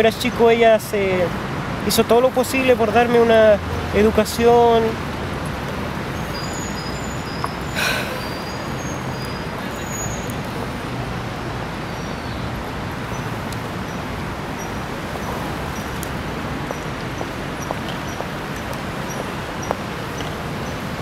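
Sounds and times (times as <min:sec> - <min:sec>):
street traffic hum: 0:00.0 - 0:21.0
high bird chirps: 0:06.2 - 0:10.4.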